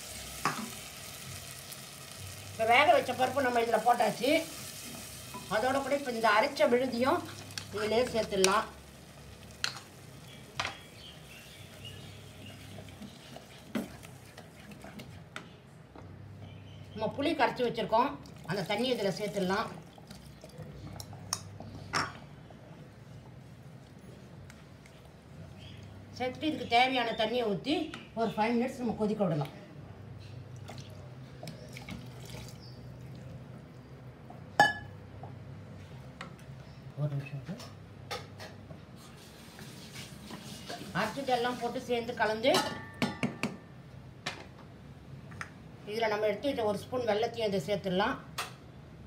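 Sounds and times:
spatula stirring thick paste: 0:11.7 - 0:15.5.

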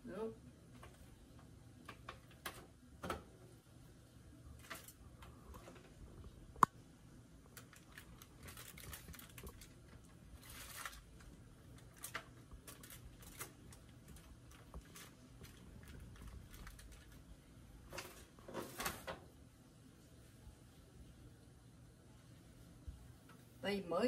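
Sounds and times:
aluminium foil rustling: 0:04.6 - 0:05.9, 0:07.4 - 0:19.2.

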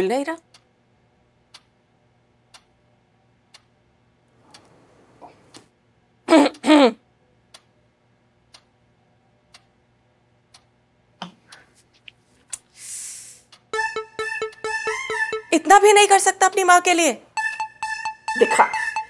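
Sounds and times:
clock ticking: 0:01.5 - 0:01.7, 0:02.5 - 0:02.7, 0:08.5 - 0:08.7, 0:13.5 - 0:19.0.

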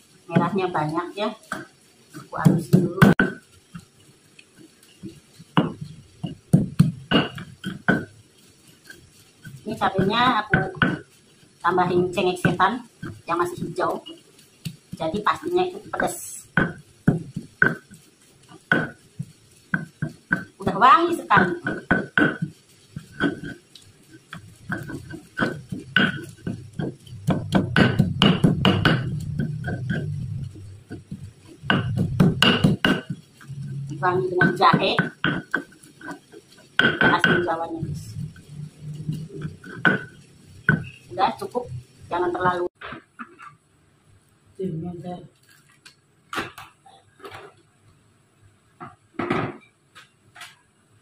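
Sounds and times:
stone pestle knocking in mortar: 0:01.4 - 0:03.9, 0:05.0 - 0:08.1, 0:08.8 - 0:11.1, 0:15.8 - 0:20.6, 0:21.3 - 0:33.6, 0:34.4 - 0:37.6, 0:38.2 - 0:41.1
low grinding rumble: 0:26.4 - 0:32.8, 0:33.4 - 0:34.6, 0:37.6 - 0:42.8.

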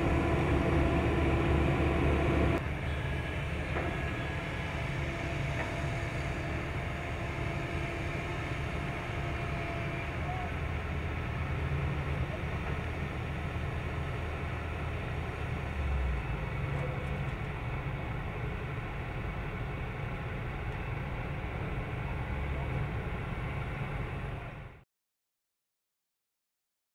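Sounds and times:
heavy machinery engines idling: 0:00.0 - 0:24.8.

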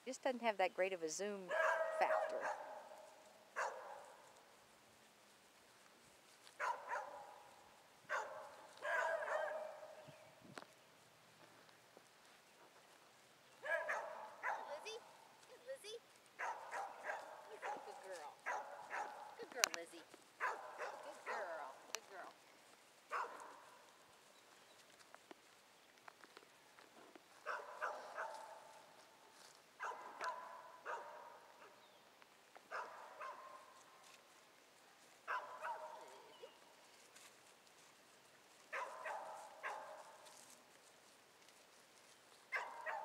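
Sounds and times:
dog barking: 0:01.5 - 0:04.2, 0:06.6 - 0:07.4, 0:08.1 - 0:10.0, 0:13.6 - 0:15.0, 0:16.4 - 0:19.4, 0:20.4 - 0:21.6, 0:23.1 - 0:23.8, 0:27.4 - 0:28.7, 0:29.8 - 0:31.8, 0:32.7 - 0:33.8, 0:35.2 - 0:36.3, 0:38.7 - 0:40.2, 0:42.5 - 0:43.0.

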